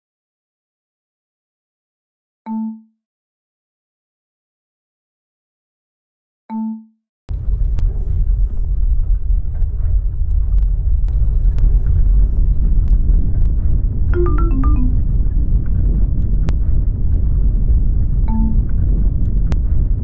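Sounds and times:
deep earthquake rumble: 7.3 - 20.0
descending chime notes: 14.2 - 15.0.

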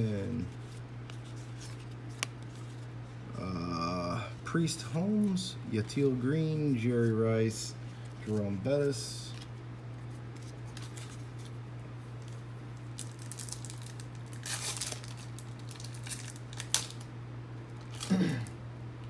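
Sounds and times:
steady low hum: 0.0 - 19.0
wrapper being torn and crinkled: 12.2 - 17.1, 17.8 - 18.5.

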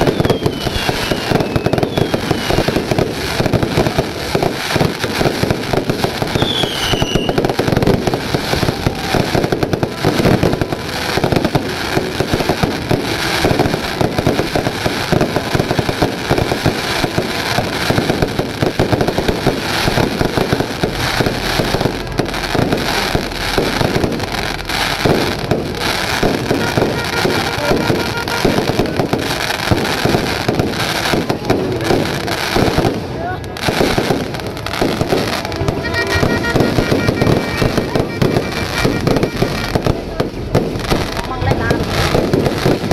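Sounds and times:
fireworks bangs and crackles: 0.0 - 42.9
falling whistle: 0.1 - 2.7, 6.4 - 7.4.

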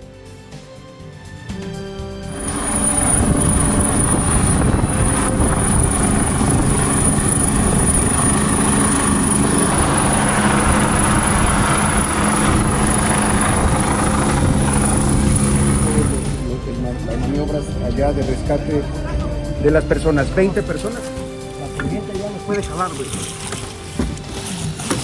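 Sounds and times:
helicopter rotor and engine noise: 1.6 - 25.0
thin high whine: 1.7 - 19.6.

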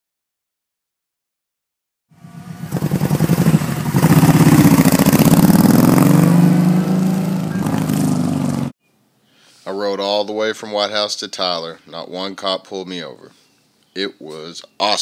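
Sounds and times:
motorcycle engine revving: 2.1 - 8.8.

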